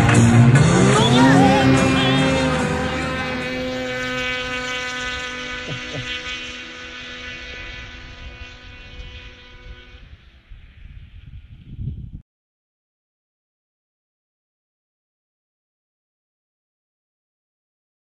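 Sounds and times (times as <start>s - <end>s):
snowmobile engine droning: 0.0s - 12.2s.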